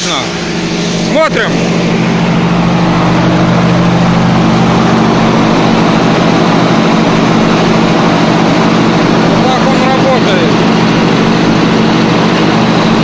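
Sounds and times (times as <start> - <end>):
air compressor humming: 0.0 - 13.0.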